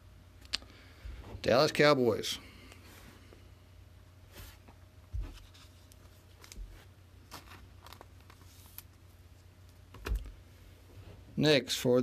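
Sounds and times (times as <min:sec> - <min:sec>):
card rustling in plastic sleeve: 0:05.3 - 0:09.5.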